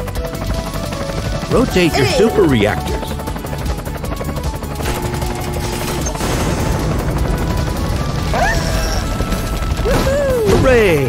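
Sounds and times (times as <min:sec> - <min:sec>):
background music: 0:00.0 - 0:11.0
cartoon helicopter rotor chopping: 0:00.0 - 0:11.0.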